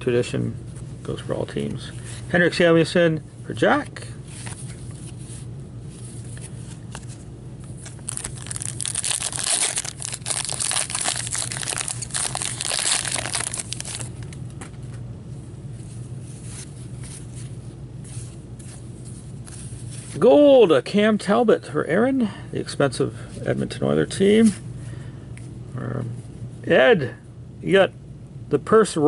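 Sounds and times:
cards rustling: 0:06.0 - 0:14.8
card wrapper crinkling and tearing: 0:07.8 - 0:14.4.

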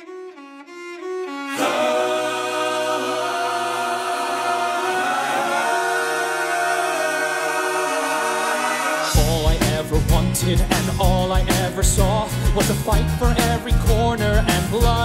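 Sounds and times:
orchestral accompaniment: 0:00.3 - 0:09.9
choir singing wordlessly: 0:01.5 - 0:09.4.

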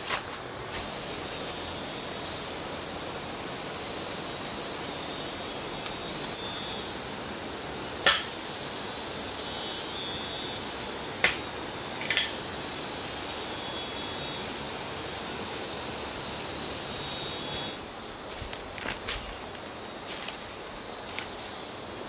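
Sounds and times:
insects chorus: 0:00.0 - 0:22.0
brush snapping underfoot: 0:18.3 - 0:20.5, 0:21.1 - 0:21.4.

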